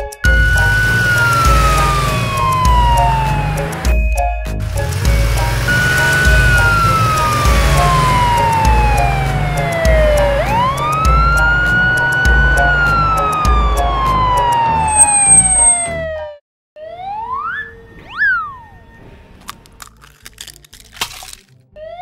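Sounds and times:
background music with steady beat: 0:00.0 - 0:15.9
police siren wailing: 0:00.3 - 0:03.9, 0:05.4 - 0:19.0, 0:21.8 - 0:22.0.

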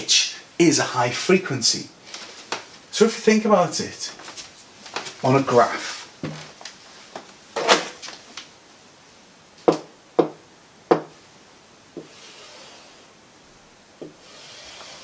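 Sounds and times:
soft rubbing on screen: 0:12.0 - 0:13.2.

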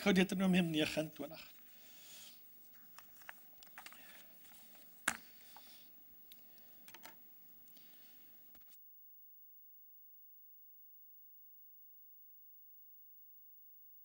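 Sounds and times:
paper pages rustling: 0:02.7 - 0:05.7.

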